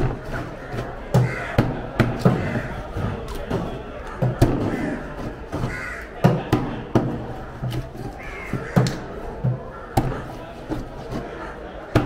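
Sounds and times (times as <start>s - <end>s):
crows cawing: 0.3s - 2.9s, 4.0s - 6.2s, 8.1s - 10.3s.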